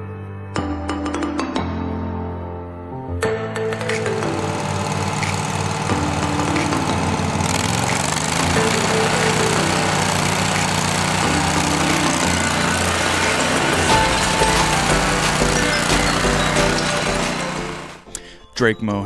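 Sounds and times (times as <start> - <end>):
lawn mower engine running: 3.6 - 18.1.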